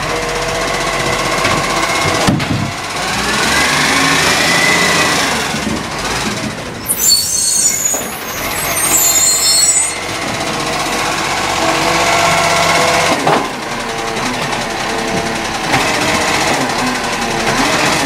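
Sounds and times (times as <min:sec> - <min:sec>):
garbage truck diesel engine: 0:00.0 - 0:18.0
air brakes hissing and squealing: 0:06.8 - 0:11.4.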